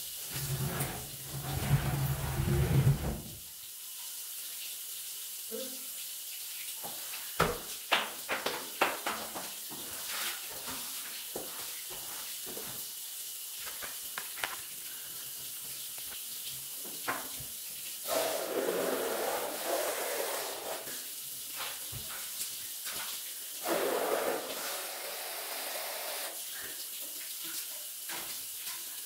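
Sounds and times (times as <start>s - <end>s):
steady hiss: 11.3s - 29.0s
squeegee swishing on wet tiles: 18.0s - 25.2s.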